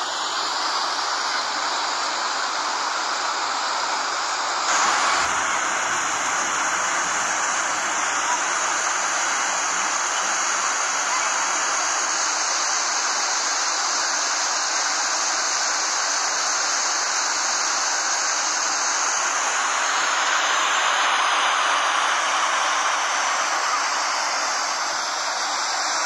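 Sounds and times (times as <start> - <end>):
waterfall rushing: 4.6 - 13.5, 18.1 - 26.0.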